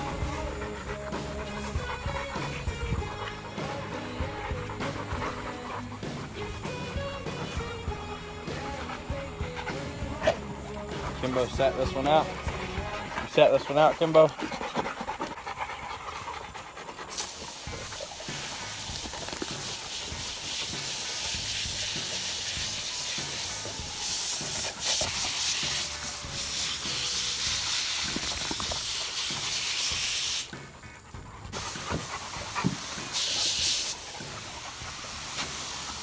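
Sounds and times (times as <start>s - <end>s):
hose nozzle spray hissing: 17.1s - 30.6s, 31.6s - 36.0s.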